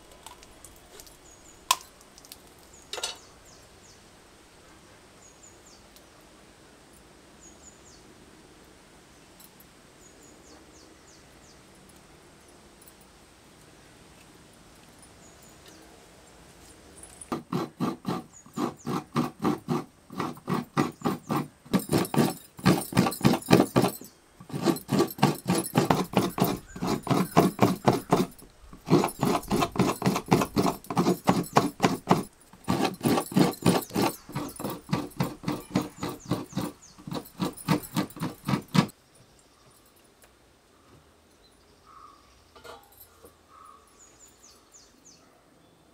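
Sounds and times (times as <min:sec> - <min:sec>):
coconut grater rasping: 0:17.3 - 0:38.9.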